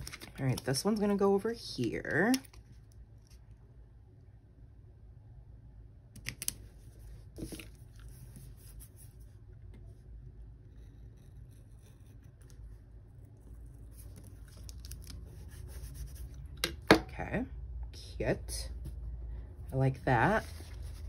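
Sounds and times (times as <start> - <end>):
paper handling: 0.0 - 1.0, 13.9 - 16.3
pen scratching on paper: 15.3 - 16.4.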